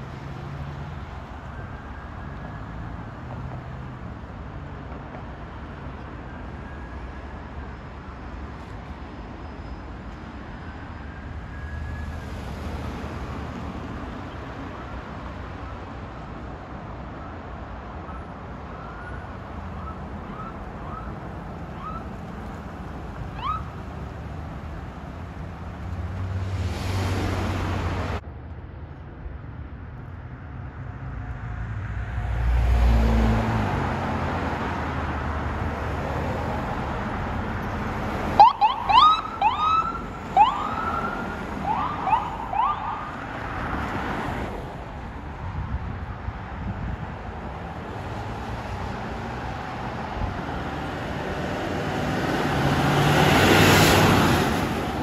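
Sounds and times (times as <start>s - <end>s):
road traffic: 0.0s - 55.0s
distant siren wailing and yelping: 18.1s - 22.3s, 23.2s - 23.8s, 38.3s - 43.3s
vehicle passing close: 50.2s - 55.0s.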